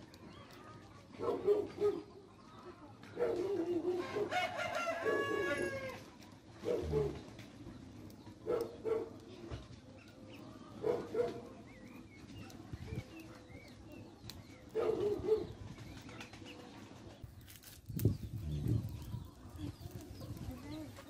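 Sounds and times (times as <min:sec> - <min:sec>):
small birds chirping: 0:00.0 - 0:03.9, 0:05.9 - 0:21.0
dove cooing: 0:03.2 - 0:05.8, 0:06.6 - 0:07.3.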